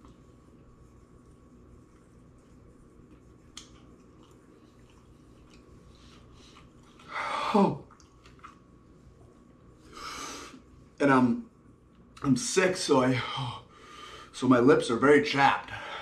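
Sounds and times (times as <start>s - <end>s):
man chewing wetly: 0.0s - 7.2s, 7.8s - 9.8s.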